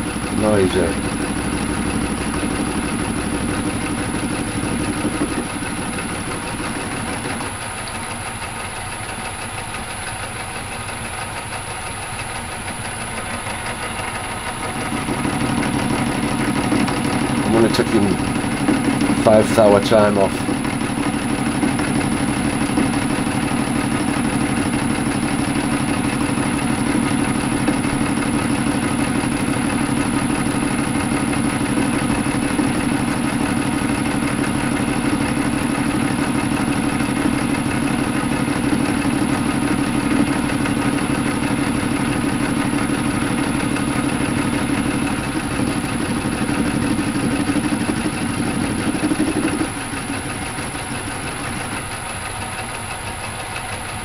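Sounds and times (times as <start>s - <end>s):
metal lathe running: 0.0s - 54.0s
lathe tool clattering: 11.3s - 54.0s.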